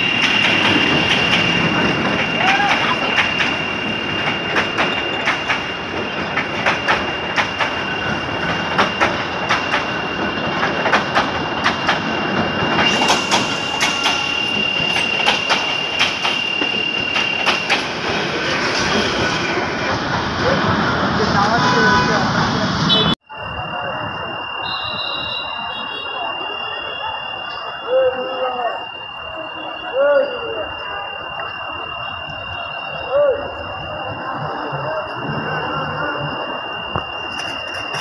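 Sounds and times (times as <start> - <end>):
train wheels clattering over rail joints: 0.0 - 19.0
high squeal of wheels on rails: 0.0 - 38.0.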